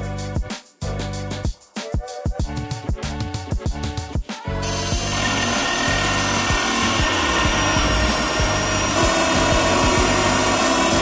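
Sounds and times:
drill boring into wood: 4.6 - 11.0.

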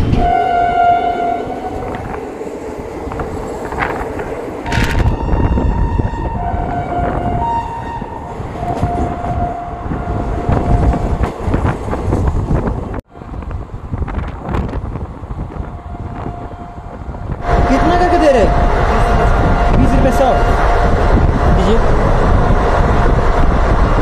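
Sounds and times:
two-pitch train horn blasts: 0.0 - 2.1, 4.7 - 11.0, 15.7 - 21.1
rail clicks: 0.0 - 24.0
train rumbling: 0.0 - 24.0.

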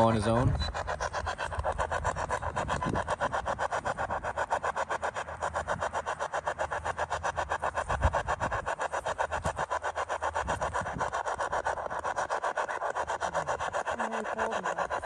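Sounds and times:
pulsing radio static: 0.0 - 4.2, 11.8 - 15.0.

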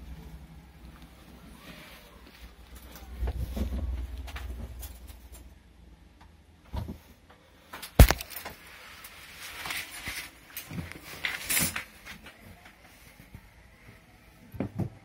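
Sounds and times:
rustling and scraping on microphone: 8.4 - 12.4.

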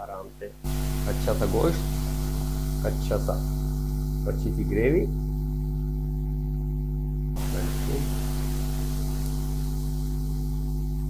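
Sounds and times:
mains hum: 0.0 - 11.0
hiss: 0.7 - 5.4, 7.4 - 11.0.

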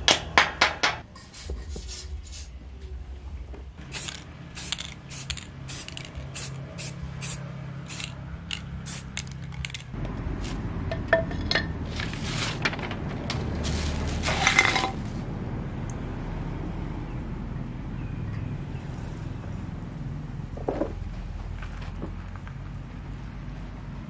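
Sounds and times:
spray can hissing: 3.8 - 10.6.

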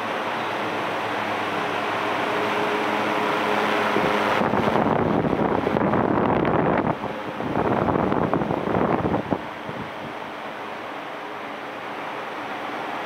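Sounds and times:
electric fan running: 0.0 - 13.0
wind buffeting microphone: 3.3 - 10.5.

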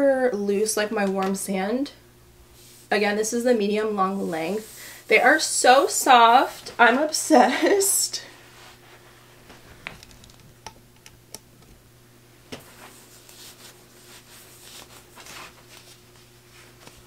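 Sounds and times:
steady low hum: 0.0 - 17.0
clothing fabric rustling: 4.0 - 10.2, 12.5 - 17.0.

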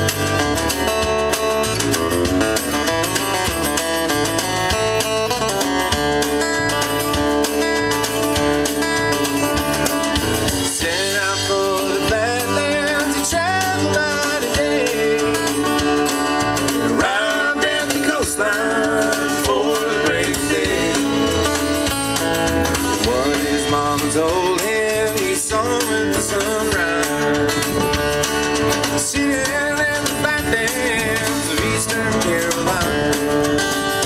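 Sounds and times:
acoustic guitars: 0.0 - 34.0
drum kit: 0.0 - 34.0
upright double bass: 0.0 - 34.0
person singing: 10.7 - 15.8, 16.9 - 21.7, 28.9 - 33.4.

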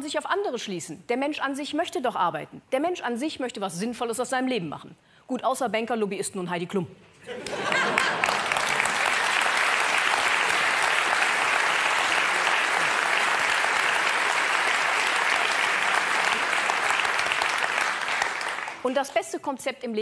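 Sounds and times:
large audience applauding: 7.4 - 18.9.

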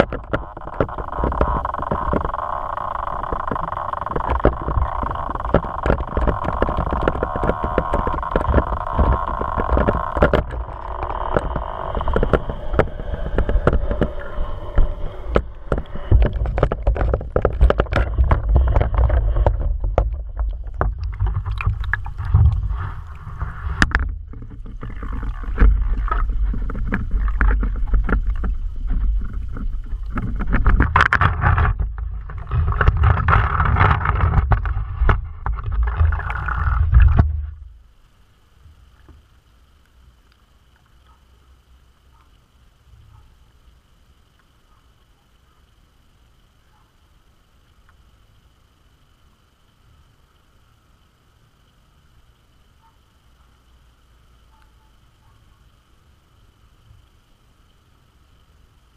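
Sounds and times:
small clicks and knocks: 0.0 - 37.7
underwater rumble: 0.0 - 40.8
steady hum: 0.0 - 58.9.

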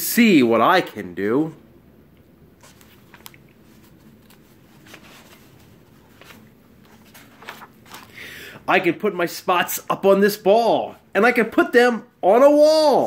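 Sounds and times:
paper pages rustling: 2.5 - 8.2.

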